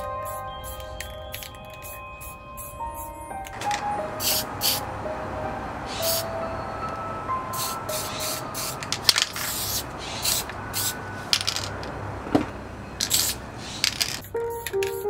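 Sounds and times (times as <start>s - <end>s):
spray paint can hissing: 0.0s - 3.1s, 4.2s - 4.8s, 5.9s - 6.3s, 7.5s - 11.6s, 13.0s - 15.0s
spray cans clicking: 0.6s - 2.0s, 3.5s - 4.8s, 7.6s - 15.0s.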